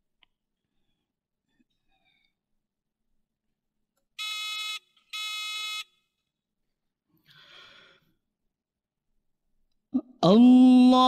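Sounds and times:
faint intake of breath: 0:07.2 - 0:08.2.

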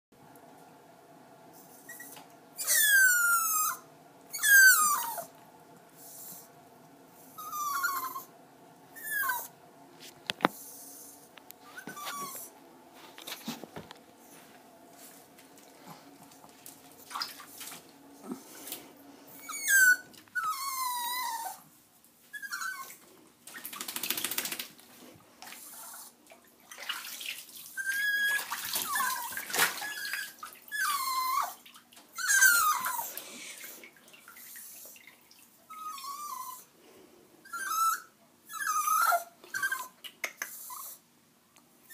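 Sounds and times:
puppy whining: 0:01.6 - 0:05.4, 0:07.3 - 0:09.6, 0:10.6 - 0:12.6, 0:19.3 - 0:21.7, 0:22.3 - 0:23.0, 0:27.8 - 0:33.7, 0:35.7 - 0:36.7, 0:37.4 - 0:41.1
water splashing in bathtub: 0:15.3 - 0:18.8, 0:25.4 - 0:30.8, 0:31.5 - 0:35.6.

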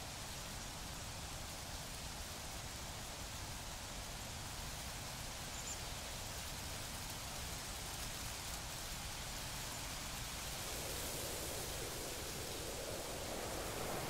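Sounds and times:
steady hiss: 0:06.5 - 0:14.0.

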